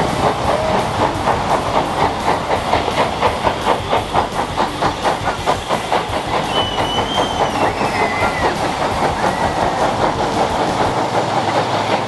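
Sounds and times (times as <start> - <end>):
steam engine exhaust chuffing: 0.0 - 12.0
steam hissing: 0.0 - 12.0.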